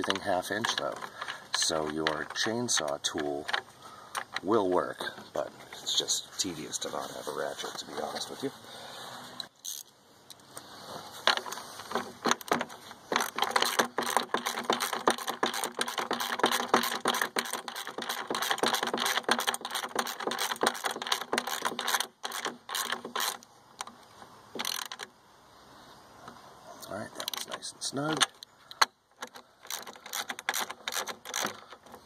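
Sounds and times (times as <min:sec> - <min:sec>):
wrench fast metallic clicks: 0:11.3 - 0:23.9, 0:27.2 - 0:32.0.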